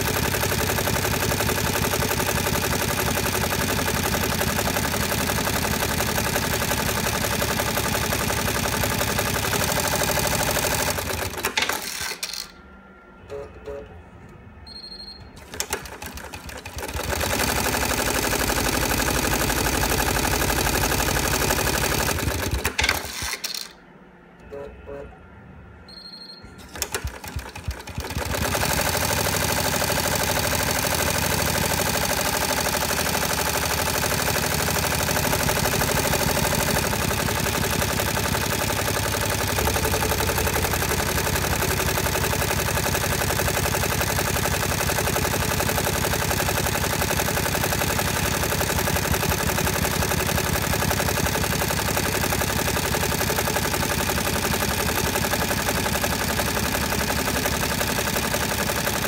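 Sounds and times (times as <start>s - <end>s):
embroidery machine needle rattle: 26.7s - 59.0s.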